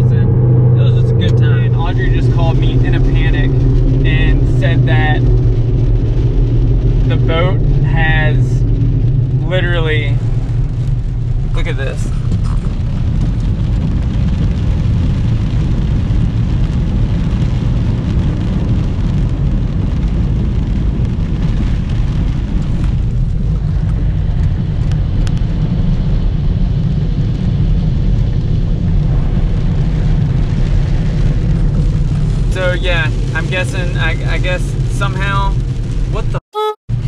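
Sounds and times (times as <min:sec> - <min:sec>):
car engine and tyres rumbling: 0:00.0 - 0:37.0
rain on car: 0:00.8 - 0:37.0.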